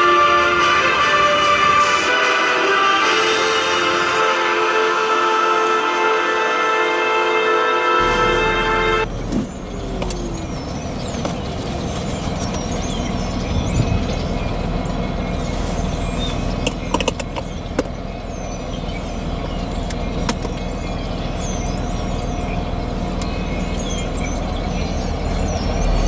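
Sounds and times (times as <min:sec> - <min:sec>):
low rumble with faint hum: 0:08.0 - 0:26.0
small birds chirping: 0:08.0 - 0:26.0.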